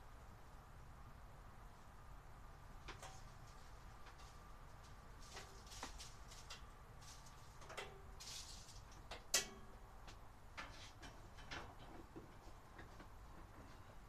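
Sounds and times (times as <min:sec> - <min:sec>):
light clicks and knocks: 0:02.8 - 0:14.0.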